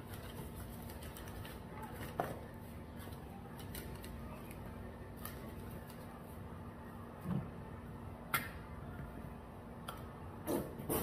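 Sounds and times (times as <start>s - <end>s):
eating and food handling: 0.0s - 6.4s
low steady hum: 0.0s - 10.9s.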